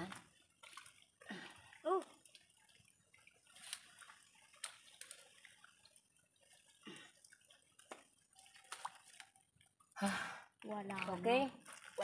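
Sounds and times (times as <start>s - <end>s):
water drips and small splashes: 0.0s - 12.0s
hands groping through wet mud: 7.8s - 9.4s.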